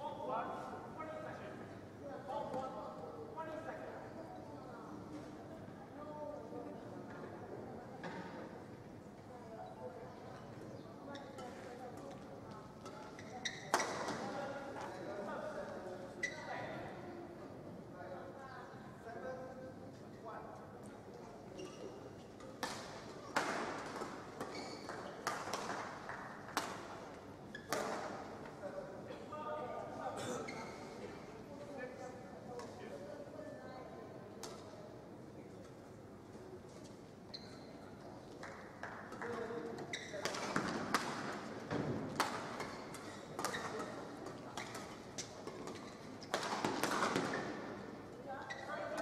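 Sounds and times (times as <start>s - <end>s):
shoes squeaking on court: 12.8s - 14.2s, 16.1s - 16.6s, 21.5s - 22.3s, 24.4s - 25.3s, 36.8s - 37.9s, 39.7s - 40.6s, 42.4s - 46.5s, 48.4s - 49.0s.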